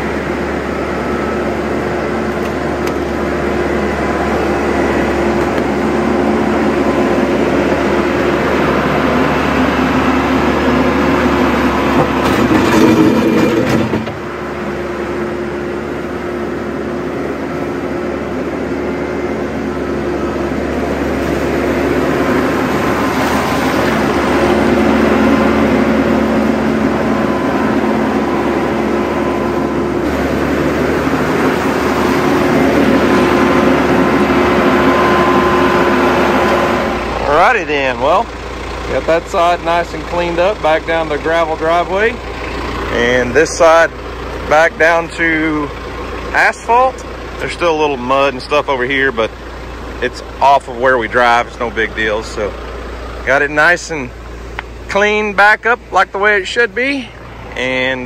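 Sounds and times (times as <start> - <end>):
tractor diesel engine running: 0.0 - 58.0
rushing creek water: 20.0 - 53.3.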